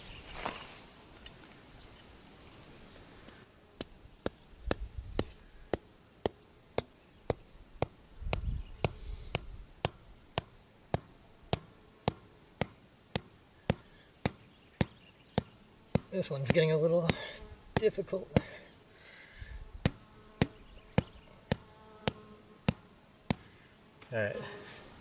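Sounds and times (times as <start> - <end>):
rubber mallet striking tent stake: 3.8 - 17.2, 19.8 - 23.5.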